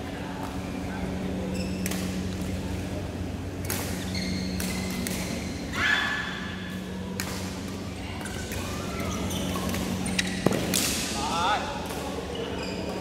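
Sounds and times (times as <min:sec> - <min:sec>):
shoe squeaking on court: 0:01.4 - 0:02.2, 0:03.9 - 0:05.6, 0:08.2 - 0:10.5, 0:12.2 - 0:13.0
rackets hitting shuttlecock: 0:07.1 - 0:11.2.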